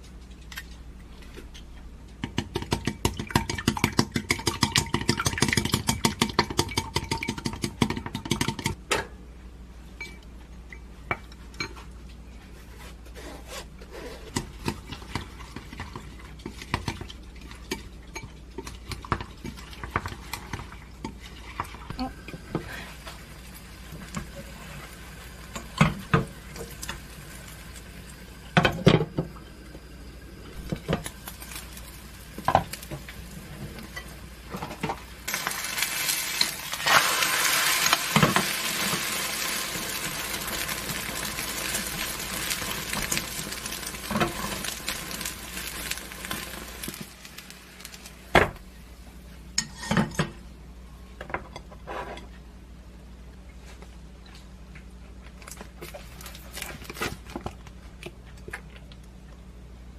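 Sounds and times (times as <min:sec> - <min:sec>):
food sizzling in a frying pan: 0:22.1 - 0:48.4.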